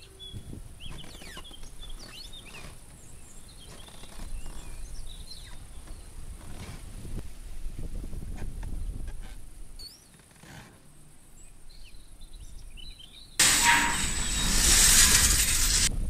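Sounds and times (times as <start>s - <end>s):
loud steady machine noise: 13.4s - 15.9s.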